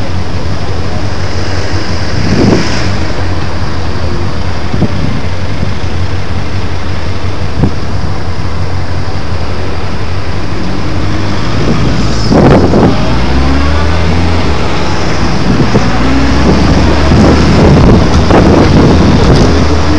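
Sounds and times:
wind buffeting microphone: 0:00.0 - 0:19.9
motorcycle engine revving: 0:10.5 - 0:19.9.

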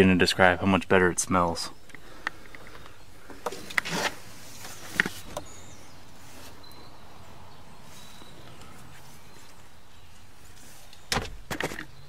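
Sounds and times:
faint high bird chirps: 0:05.2 - 0:11.2.

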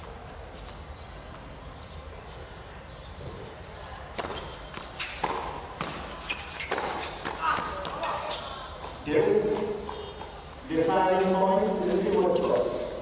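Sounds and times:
faint crowd murmur: 0:00.0 - 0:13.0
tennis ball hit by racket: 0:04.1 - 0:10.3
tennis ball bounce: 0:04.1 - 0:10.4.

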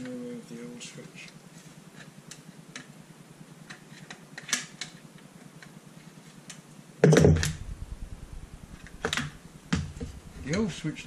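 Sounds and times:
low hum: 0:07.2 - 0:11.0.

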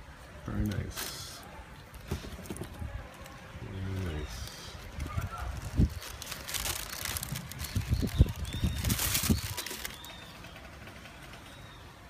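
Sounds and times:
tissue paper rustling: 0:03.1 - 0:10.1.

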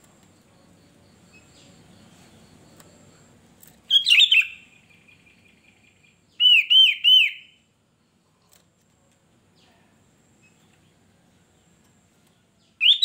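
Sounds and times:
bird chirping: 0:00.7 - 0:08.5, 0:10.4 - 0:13.0
bird whistled notes: 0:03.9 - 0:07.6, 0:12.8 - 0:13.0.

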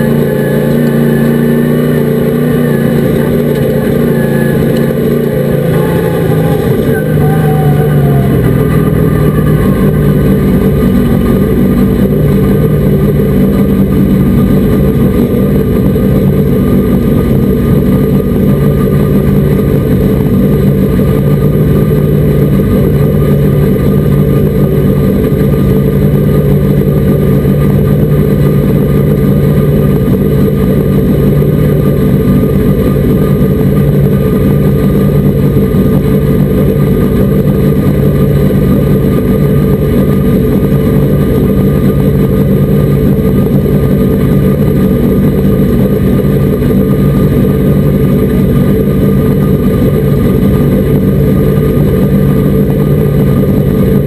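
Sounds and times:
race truck engine running: 0:00.0 - 0:54.0.

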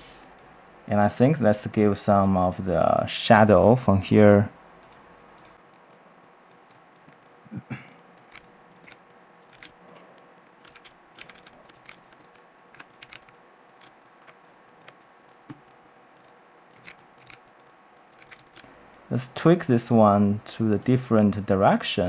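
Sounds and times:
faint steady hum: 0:00.0 - 0:22.0
mouse and keyboard clicks: 0:08.0 - 0:18.7.

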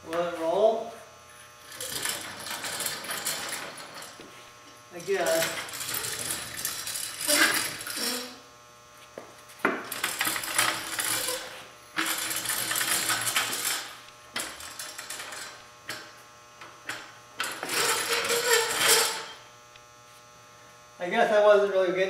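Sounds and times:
casters rattling on concrete: 0:01.7 - 0:04.2.

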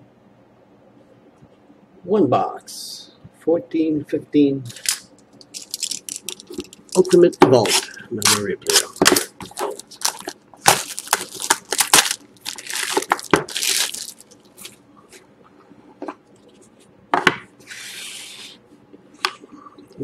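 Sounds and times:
shrink-wrap tearing and crackling: 0:04.7 - 0:14.8.

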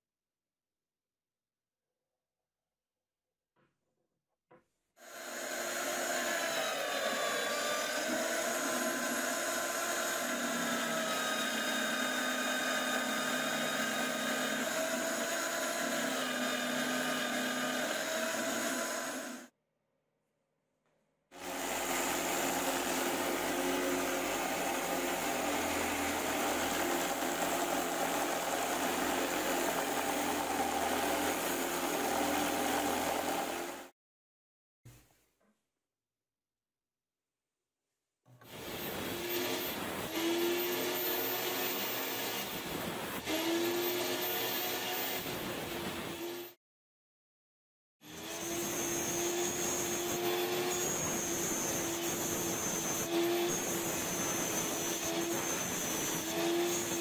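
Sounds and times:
power tool cutting plywood: 0:05.0 - 0:19.5, 0:21.3 - 0:33.9, 0:38.3 - 0:46.6, 0:48.0 - 0:57.0
belt grinder sanding wood: 0:21.4 - 0:33.8.

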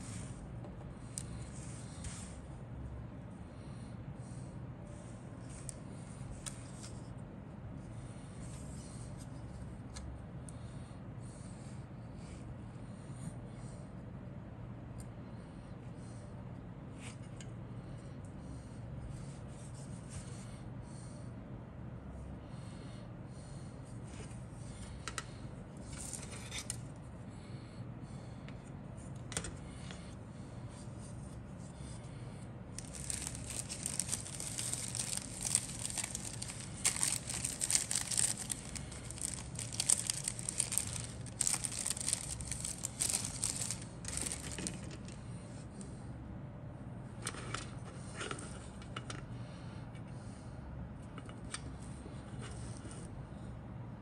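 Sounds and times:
plastic crinkling and rustling: 0:32.8 - 0:45.2.

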